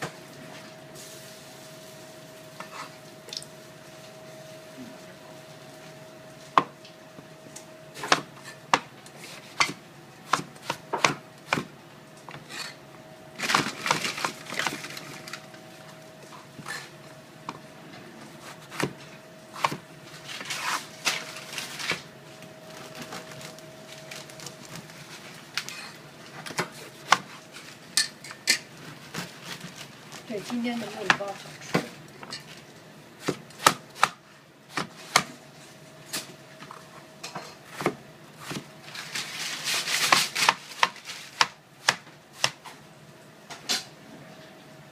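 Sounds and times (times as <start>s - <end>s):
scraping and rustling of food: 0.1s - 6.6s, 12.3s - 12.8s, 13.4s - 32.9s, 38.4s - 42.9s.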